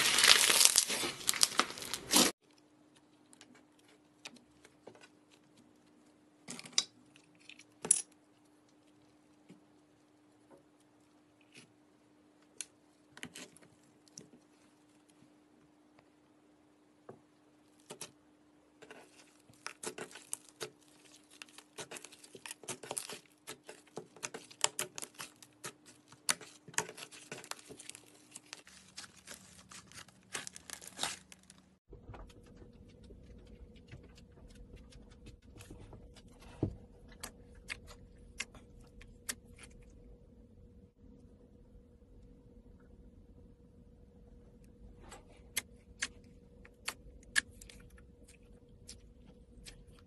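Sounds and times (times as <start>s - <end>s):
slime crackling and popping: 0.0s - 2.3s.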